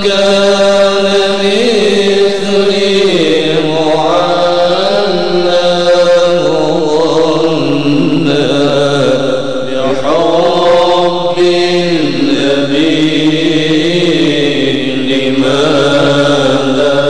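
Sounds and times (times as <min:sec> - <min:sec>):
person chanting devotional poem: 0:00.0 - 0:17.0
steady low drone: 0:06.4 - 0:17.0.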